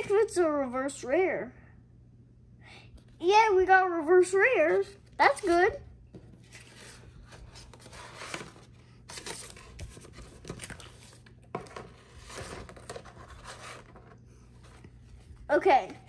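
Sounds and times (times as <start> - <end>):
cards shuffling: 6.2 - 15.0.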